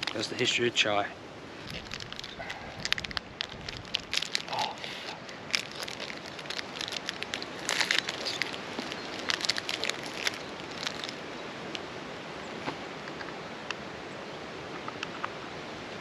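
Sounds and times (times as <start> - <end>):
wrapper crinkling: 0.0 - 0.4, 1.6 - 11.3
background rush: 0.0 - 14.1.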